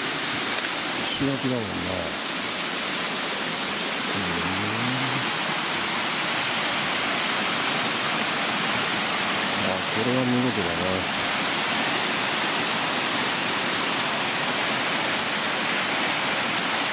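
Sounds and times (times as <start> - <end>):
waterfall rushing: 0.0 - 16.9
man murmuring: 4.1 - 5.4, 9.6 - 11.1.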